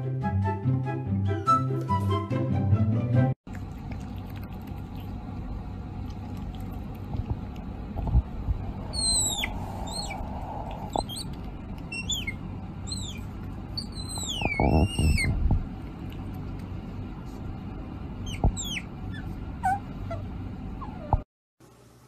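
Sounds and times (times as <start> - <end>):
baby otter squeaks: 8.9 - 10.2, 10.8 - 11.3, 11.9 - 15.4, 18.2 - 20.2.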